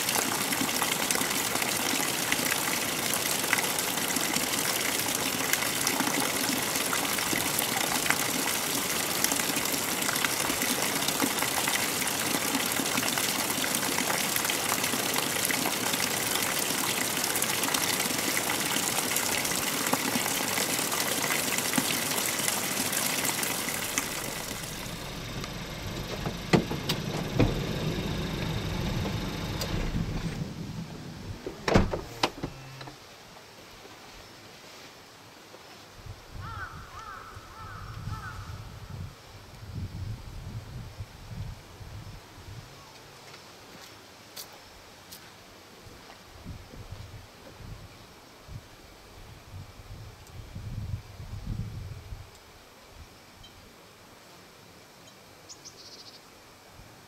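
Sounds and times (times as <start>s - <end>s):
stream water rushing: 0.0s - 32.8s
low rumble: 23.9s - 32.2s.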